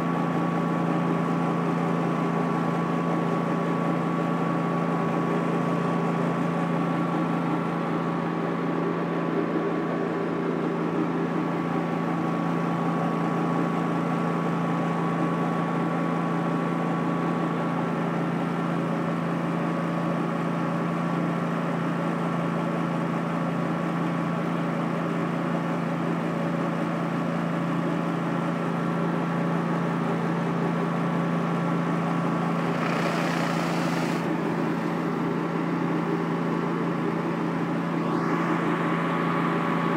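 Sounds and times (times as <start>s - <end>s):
pressure washer engine droning: 30.6s - 39.9s.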